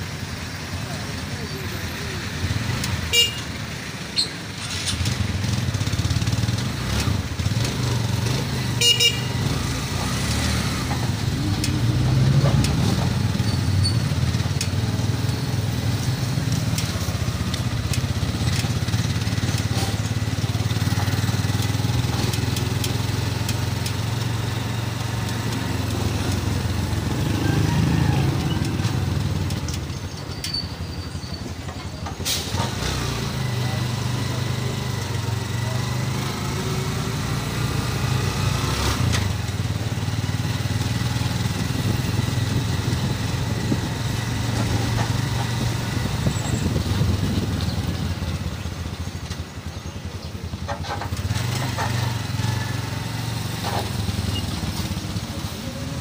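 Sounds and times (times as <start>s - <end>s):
street traffic: 0.0s - 56.0s
vehicle engine running: 0.0s - 56.0s
horn toot: 3.0s - 3.6s, 8.6s - 9.8s.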